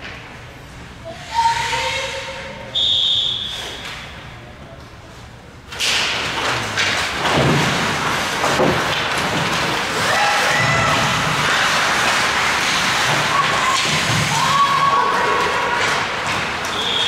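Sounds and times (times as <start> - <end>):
high whistle blast: 1.3 - 4.0
rush of play on ice: 6.1 - 17.0.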